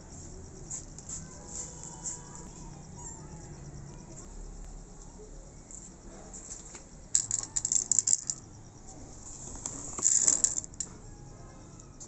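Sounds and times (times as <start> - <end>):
kibble rattling onto a plate: 7.2 - 8.4, 9.6 - 10.9.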